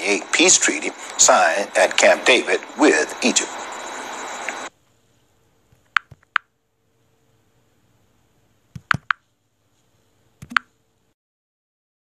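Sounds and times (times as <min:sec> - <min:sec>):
sharp clicks: 0:05.8 - 0:06.5, 0:08.7 - 0:09.2, 0:10.4 - 0:10.7.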